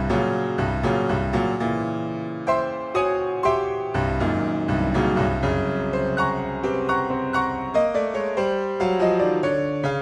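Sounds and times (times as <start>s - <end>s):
slow piano music: 0.0s - 10.0s.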